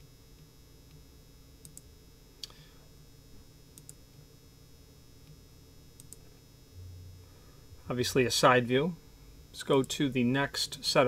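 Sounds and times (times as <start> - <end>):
faint low hum: 0.0 - 11.0
computer mouse clicks: 1.6 - 2.6, 3.8 - 4.0, 6.0 - 6.3.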